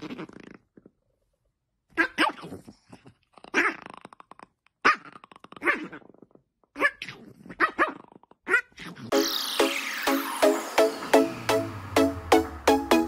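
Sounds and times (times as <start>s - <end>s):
dog growling and barking: 1.9s - 9.1s.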